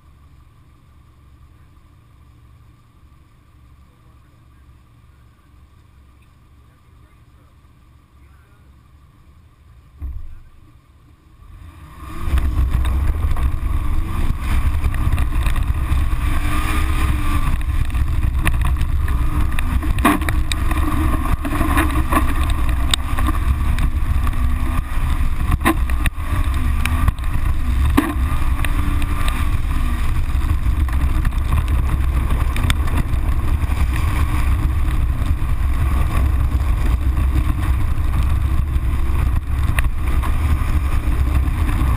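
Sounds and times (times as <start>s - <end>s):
car engine revving: 0.0s - 41.9s
wind buffeting microphone: 12.2s - 41.9s.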